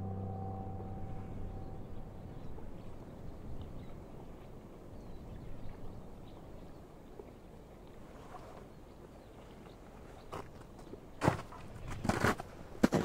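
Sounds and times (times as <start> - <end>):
low wind rumble: 0.0 - 8.1.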